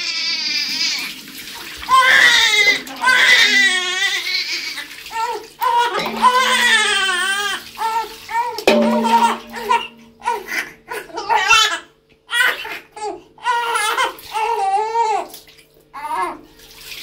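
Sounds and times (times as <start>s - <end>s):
newborn baby crying: 1.9s - 8.2s, 12.3s - 15.3s.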